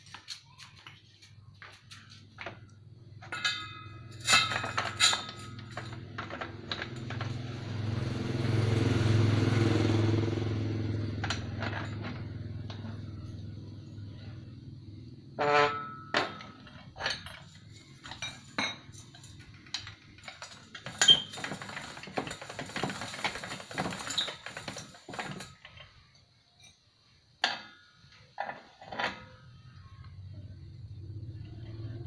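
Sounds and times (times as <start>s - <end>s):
slip roll rattling: 3.3s - 7.6s, 15.7s - 26.0s.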